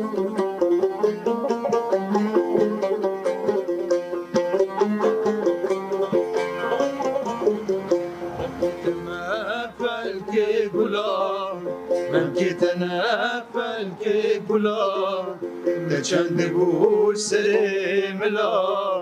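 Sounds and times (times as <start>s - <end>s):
long-necked lutes playing: 0.0s - 19.0s
person singing ornamented melody: 6.0s - 19.0s.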